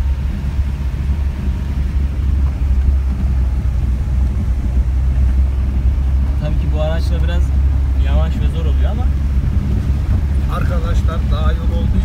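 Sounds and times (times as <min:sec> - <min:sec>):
car driving on gravel: 0:00.0 - 0:12.0.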